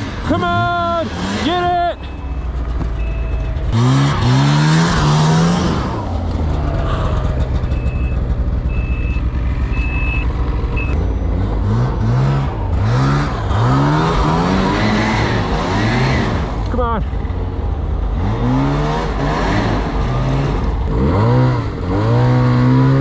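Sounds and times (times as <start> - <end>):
snowmobile engine revving: 0.0 - 23.0
reverse warning beeps: 1.8 - 3.6, 7.6 - 11.3.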